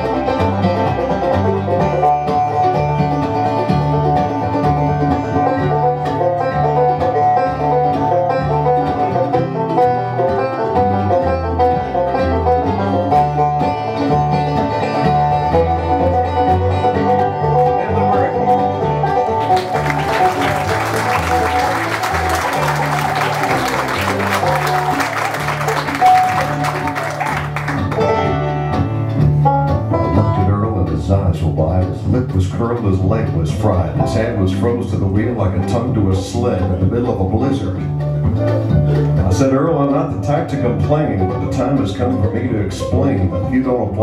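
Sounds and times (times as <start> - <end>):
banjo: 0.0 - 44.0
bluegrass band playing: 0.0 - 44.0
audience applause: 19.2 - 28.1.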